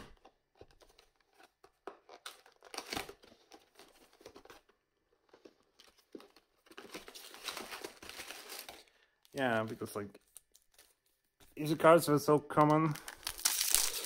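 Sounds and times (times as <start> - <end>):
foil pack tearing and crinkling: 13.0 - 14.0.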